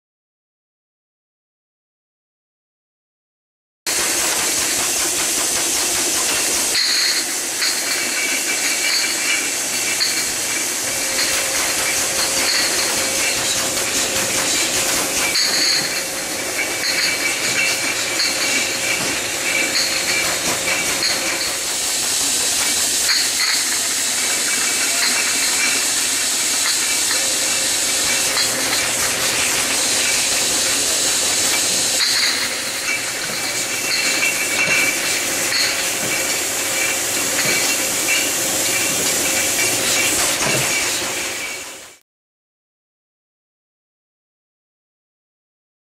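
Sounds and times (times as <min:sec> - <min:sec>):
bottle clicks and clinks: 0:11.0 - 0:21.6, 0:26.5 - 0:40.8.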